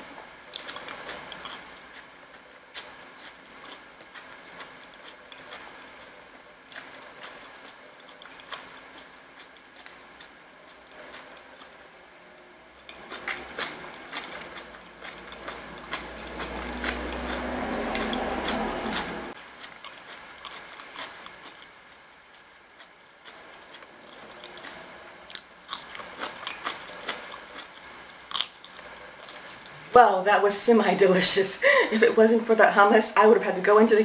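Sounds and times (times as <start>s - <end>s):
chewing: 0.5s - 12.2s, 12.8s - 29.9s
low rumble: 15.2s - 19.4s.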